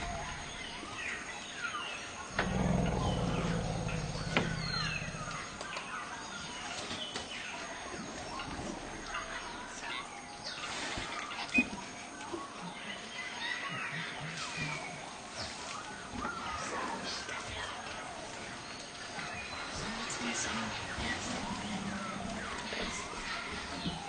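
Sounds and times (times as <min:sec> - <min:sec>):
elephant deep rumble: 0:00.0 - 0:01.1, 0:02.2 - 0:06.4
birds chirping: 0:00.0 - 0:10.7.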